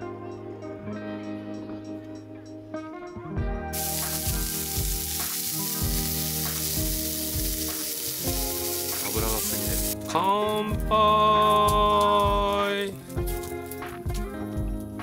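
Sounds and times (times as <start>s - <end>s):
background music with steady beat: 0.0s - 15.0s
sausages sizzling in frying pan: 3.7s - 15.0s.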